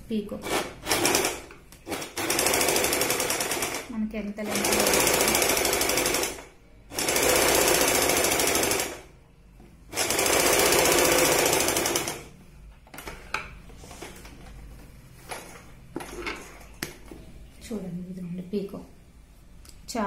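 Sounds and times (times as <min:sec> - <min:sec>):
electric sewing machine stitching: 0:00.4 - 0:09.0, 0:09.9 - 0:12.3.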